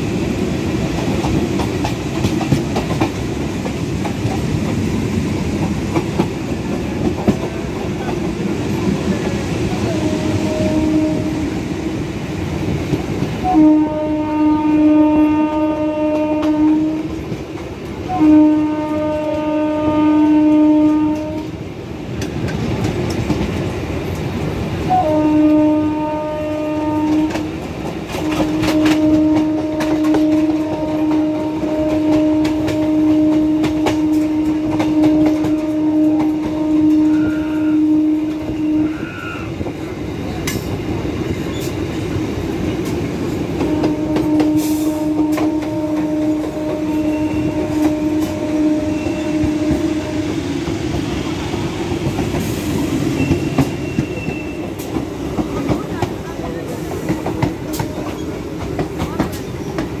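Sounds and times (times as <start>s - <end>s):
train wheels clickety-clack: 0.0s - 60.0s
train horn blasts: 9.7s - 11.7s, 13.4s - 17.4s, 18.0s - 21.6s, 24.8s - 39.7s, 43.6s - 50.6s.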